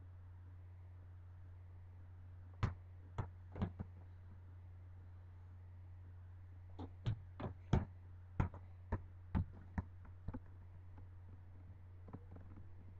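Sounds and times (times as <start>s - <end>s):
steady low hum: 0.0s - 12.9s
basketball bouncing on concrete: 2.6s - 3.9s, 6.8s - 10.5s.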